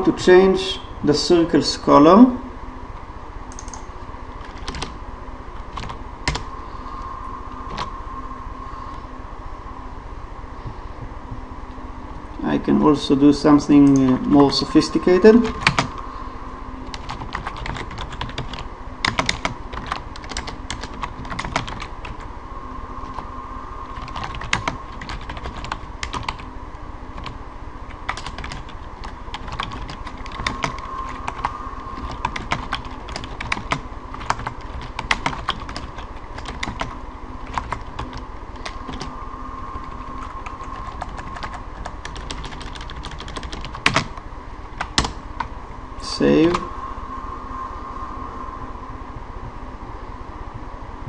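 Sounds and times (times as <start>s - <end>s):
faint steady hum: 0.0s - 51.0s
computer keyboard typing: 3.5s - 3.8s, 4.4s - 5.0s, 5.7s - 6.4s, 7.7s - 7.9s, 13.8s - 14.4s, 15.5s - 16.0s, 16.9s - 22.2s, 24.0s - 26.4s, 27.2s - 27.4s, 28.0s - 39.1s, 39.9s - 44.2s, 44.8s - 45.2s.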